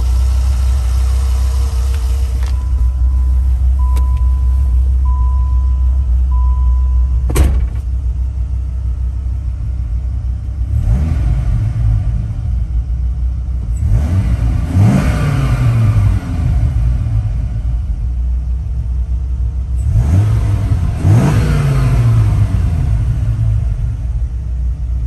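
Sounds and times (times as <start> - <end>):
car engine idling and revving: 0.0 - 25.0
electronic beeping tone: 2.5 - 7.3
sharp thud: 7.3 - 8.0.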